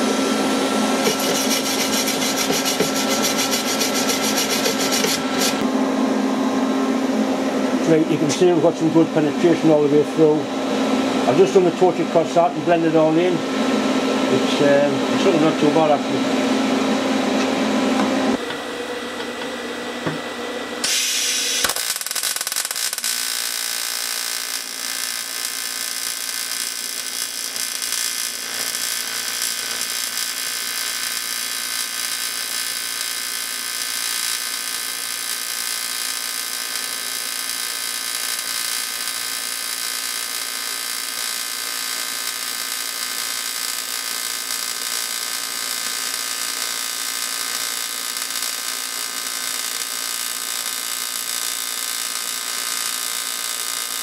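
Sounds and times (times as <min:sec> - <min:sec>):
welding arc buzzing with high hiss: 0:00.0 - 0:05.7, 0:16.9 - 0:54.0.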